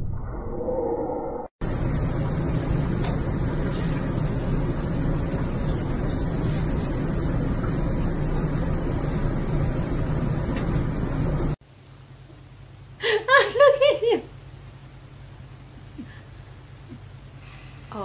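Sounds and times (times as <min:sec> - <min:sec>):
low motor hum: 0:00.0 - 0:11.6
churning water: 0:01.6 - 0:11.6.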